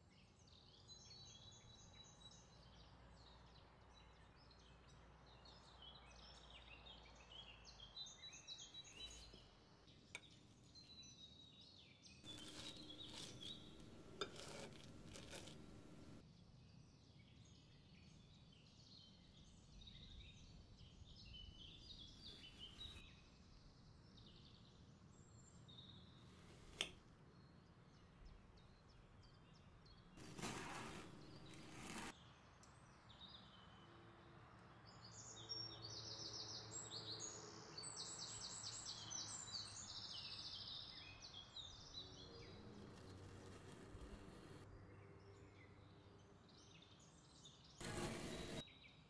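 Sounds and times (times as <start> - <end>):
fork scraping on ceramic plate: 12.3 - 16.2, 30.2 - 32.1, 47.8 - 48.6.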